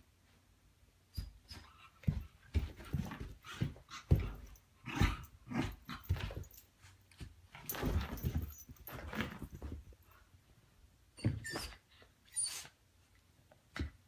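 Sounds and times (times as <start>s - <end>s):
dogs scuffling: 7.2s - 10.0s.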